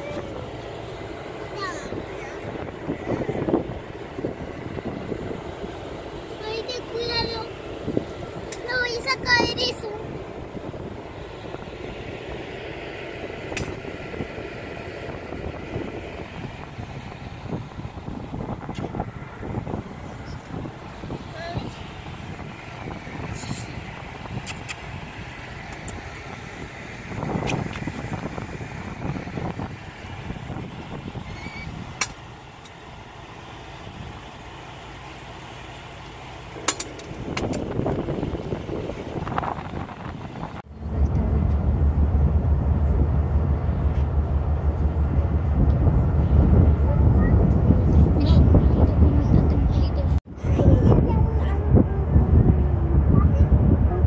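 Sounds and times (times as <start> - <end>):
ship machinery rumble: 0.0 - 54.0
wind rushing: 1.0 - 32.3, 37.1 - 54.0
sharp click: 24.4 - 24.8.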